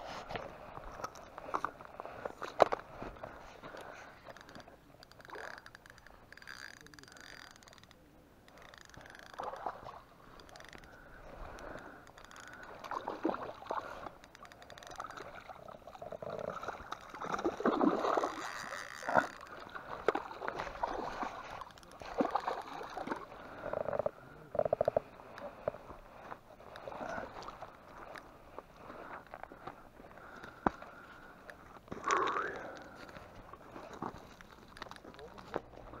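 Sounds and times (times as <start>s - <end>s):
fish splashing in water: 8.9s - 23.7s.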